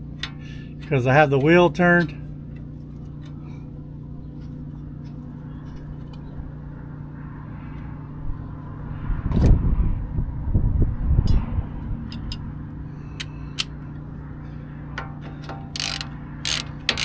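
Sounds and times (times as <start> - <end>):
low mechanical hum: 0.0 - 17.0
wind on microphone: 8.8 - 12.4.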